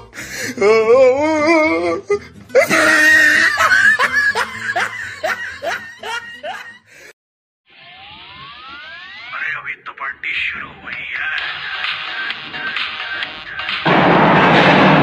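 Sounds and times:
person laughing loudly: 2.5s - 6.9s.

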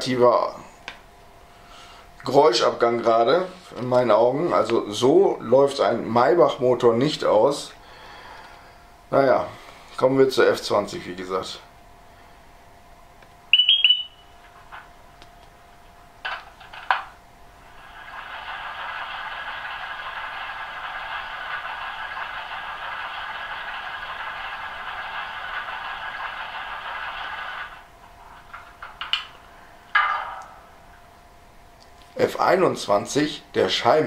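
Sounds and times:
steady hiss of fuel flowing: 17.6s - 28.0s.

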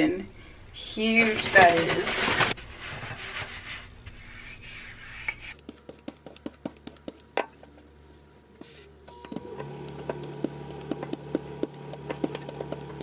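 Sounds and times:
hand rubbing flour on countertop: 1.0s - 7.2s, 8.6s - 9.0s
rolling pin rolling dough: 1.1s - 7.9s, 9.9s - 13.0s.

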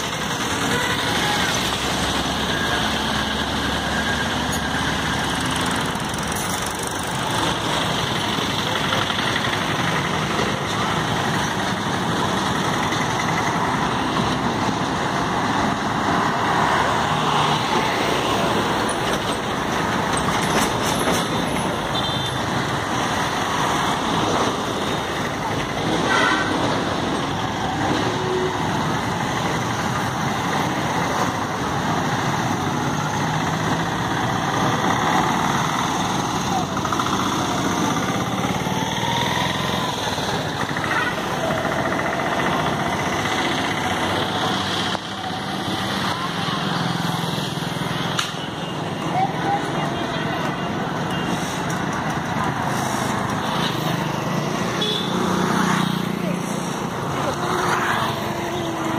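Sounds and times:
road and wind noise: 0.0s - 58.9s.

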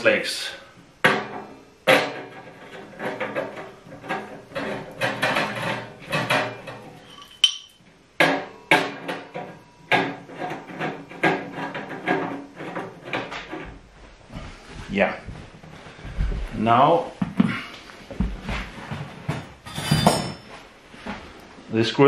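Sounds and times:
metal clanks and rattles: 1.0s - 13.8s, 19.2s - 20.6s
metal stove body ringing: 5.0s - 10.2s, 19.7s - 20.6s.

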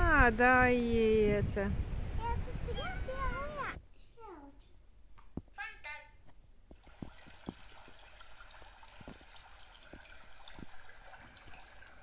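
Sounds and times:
water trickling through small speaker: 6.8s - 12.0s.

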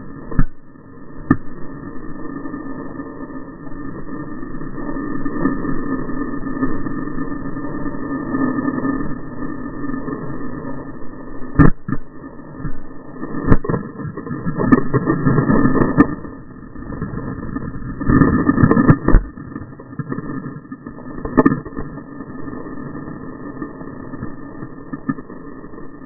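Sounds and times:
water rushing and churning: 12.6s - 26.0s.

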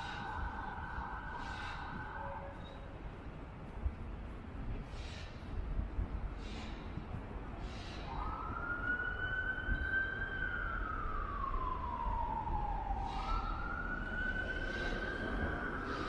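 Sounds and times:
emergency vehicle siren wailing: 0.0s - 3.0s, 8.0s - 16.0s.

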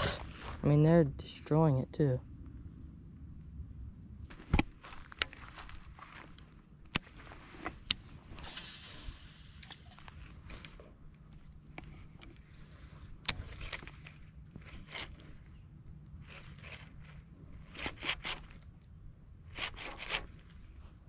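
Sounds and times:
reel whirring hiss: 8.3s - 10.0s
rod and reel clicks and knocks: 16.3s - 18.7s.

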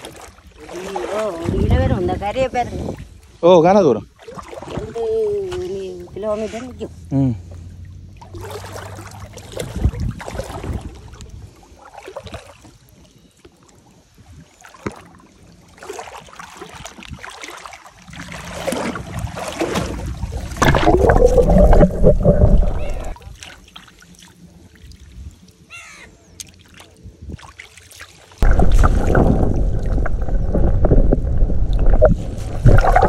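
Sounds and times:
water sloshing and splashing: 0.0s - 25.7s, 26.3s - 33.0s
underwater rumbling and gurgling: 18.0s - 23.2s, 28.4s - 33.0s.

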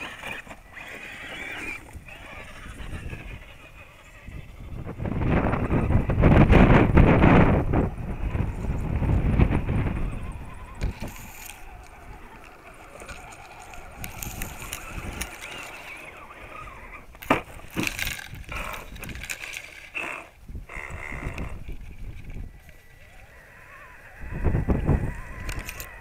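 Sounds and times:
wind on microphone: 0.0s - 26.0s
grass brushing against toy truck: 8.2s - 19.9s
toy truck tumbling knocks: 17.1s - 19.7s.

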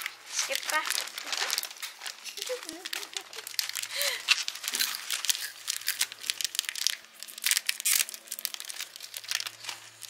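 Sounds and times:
plastic wrapper crinkling: 0.0s - 10.0s.

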